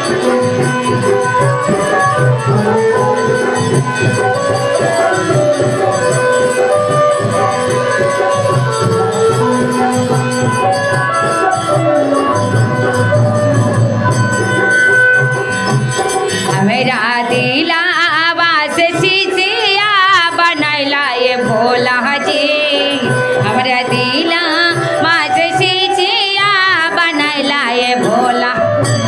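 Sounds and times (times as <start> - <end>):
musical accompaniment: 0.0 - 29.0
woman singing amplified: 16.4 - 29.0.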